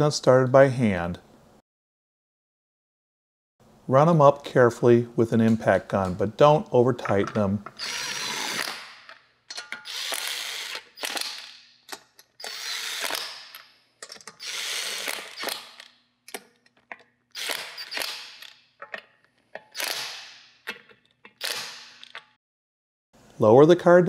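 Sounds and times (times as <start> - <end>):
impact wrench bursts: 7.8 - 9.1, 9.7 - 13.7, 14.3 - 16.0, 17.3 - 18.6, 19.6 - 20.6, 21.4 - 22.1.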